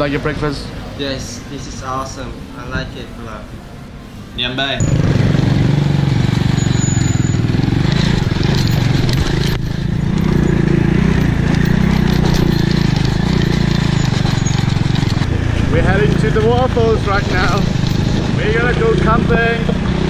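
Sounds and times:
motorcycle engine running: 4.8 - 20.0.

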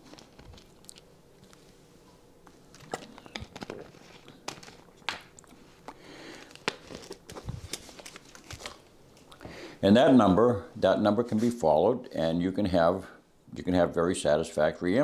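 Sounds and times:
plastic bottle crinkling: 0.0 - 1.6, 2.4 - 9.4.

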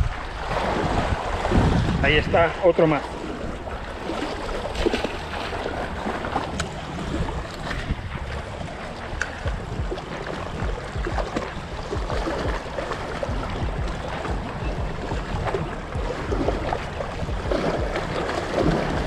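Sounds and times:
small waves lapping on rocks: 0.0 - 19.0
wind buffeting microphone: 0.0 - 19.0
fish splashing into water: 3.9 - 7.9, 8.7 - 19.0.

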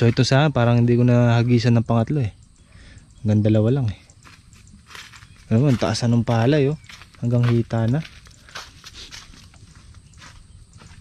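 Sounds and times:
faint scuffing footsteps: 4.0 - 11.0.

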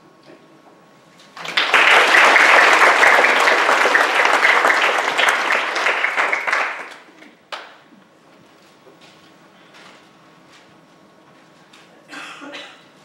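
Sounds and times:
congregation applauding: 1.4 - 7.7.

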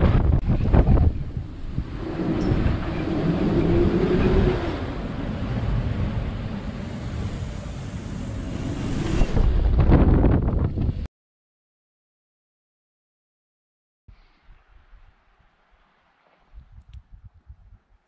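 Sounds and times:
wind buffeting microphone: 0.0 - 11.1, 16.4 - 18.0
sea rushing: 0.5 - 10.1.

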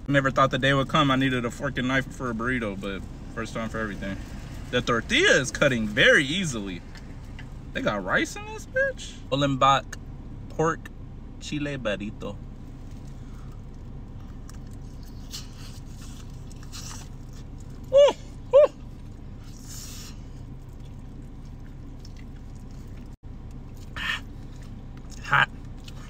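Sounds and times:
steady low hum: 0.0 - 26.0
man chewing: 12.6 - 26.0
high-pitched yelps: 17.9 - 18.8.

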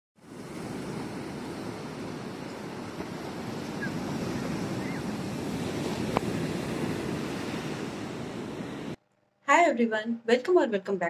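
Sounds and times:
sea waves breaking on beach: 0.2 - 9.0.

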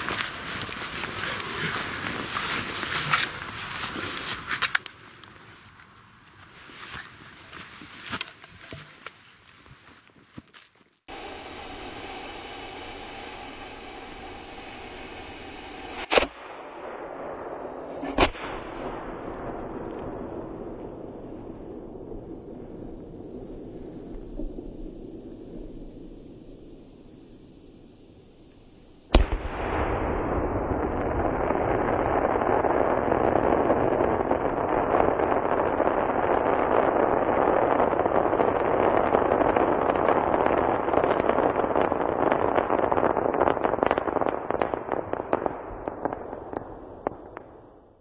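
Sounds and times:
steady hiss: 0.0 - 17.8
firework crackling: 0.0 - 48.0
firework shell bang: 29.1 - 30.0
smaller firework bang: 29.1 - 36.8.

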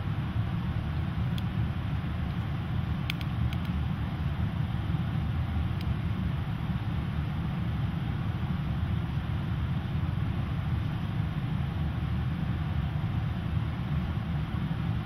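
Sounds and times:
steady low rumble: 0.0 - 15.0
faint clicks: 3.1 - 3.8.

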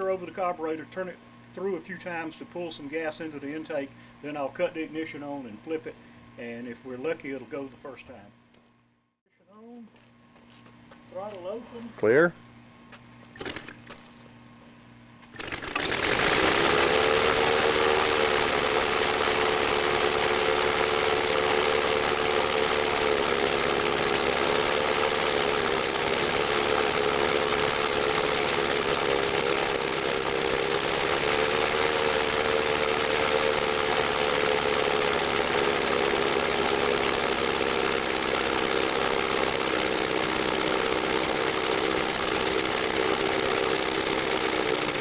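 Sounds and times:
model radial engine running: 15.4 - 45.0.

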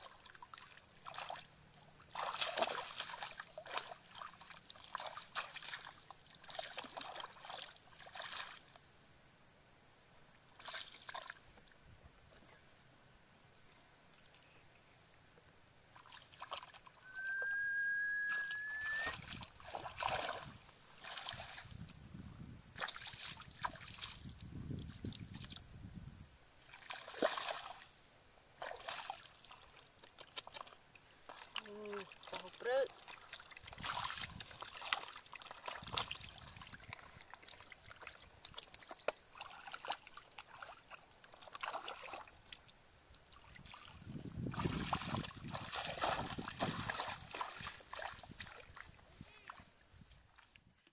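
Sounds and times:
muddy water sloshing: 0.0 - 8.8, 10.6 - 11.5, 15.9 - 22.1, 22.7 - 25.7, 26.6 - 50.6
thin rising whistle: 17.0 - 19.3.

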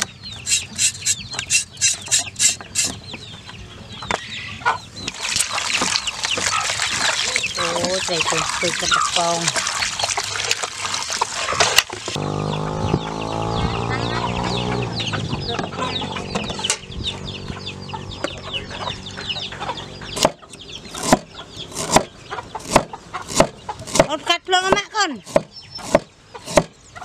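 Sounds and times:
chicks peeping: 0.0 - 10.4, 12.2 - 24.0
water sloshing in a basin: 5.0 - 12.2
steady low hum: 12.2 - 22.2
cleaver chopping on wood: 20.2 - 20.4, 21.0 - 26.8.

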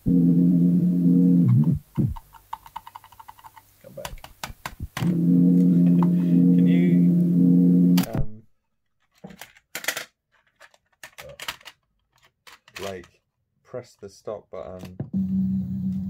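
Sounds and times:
cassette player drone: 0.0 - 2.2, 5.0 - 8.3, 15.2 - 16.0.

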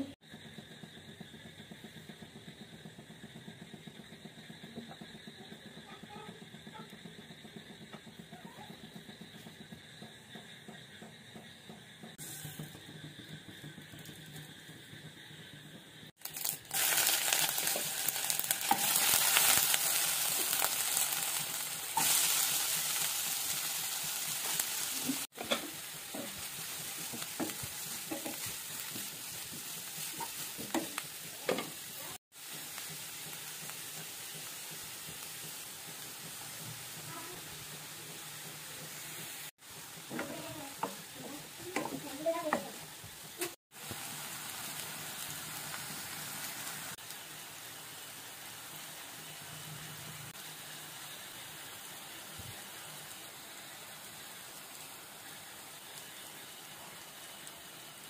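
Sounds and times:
onions sizzling in hot oil: 0.0 - 58.0
stirring knocks: 25.1 - 32.6, 33.9 - 43.6.

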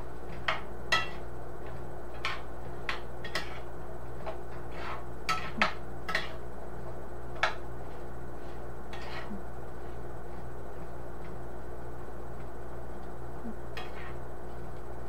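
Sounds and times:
utensil scraping a skillet: 0.0 - 6.5, 7.3 - 11.3, 13.7 - 14.3.

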